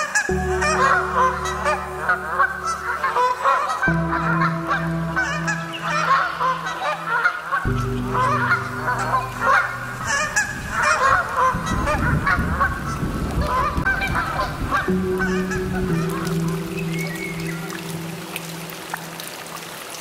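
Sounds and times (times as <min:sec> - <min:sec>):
birds honking and cackling: 0:00.0 - 0:19.8
low drone of held tones: 0:00.3 - 0:19.6
low rumble: 0:07.7 - 0:19.0.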